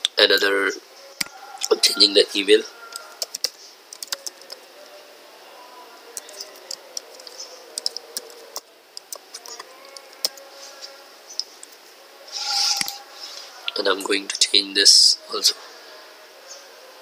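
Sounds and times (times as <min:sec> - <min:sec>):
faint background hum: 0:00.0 - 0:17.0
computer keyboard typing: 0:03.2 - 0:04.6, 0:06.2 - 0:10.4.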